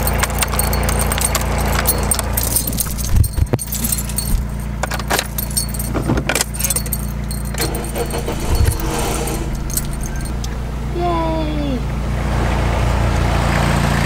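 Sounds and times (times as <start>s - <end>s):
car keys jangling: 0.0s - 10.8s
car engine idling: 0.0s - 14.0s.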